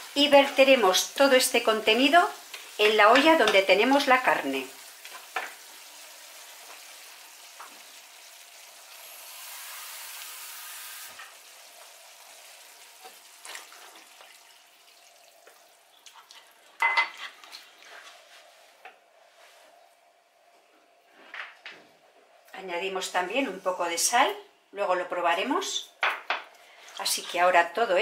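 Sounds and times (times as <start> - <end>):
vegetables sizzling in a frying pan: 0.0 - 15.6
water poured into a pan: 1.8 - 17.8.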